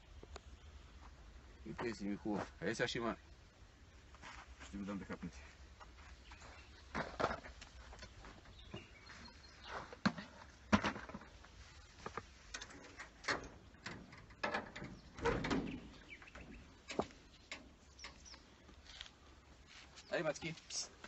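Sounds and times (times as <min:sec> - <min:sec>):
metal door handle rattling: 0:12.6 - 0:18.2.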